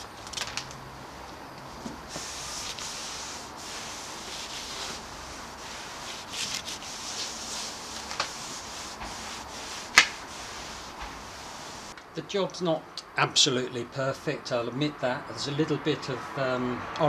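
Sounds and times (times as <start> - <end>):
cloth wiping wet paint: 2.0 - 12.0.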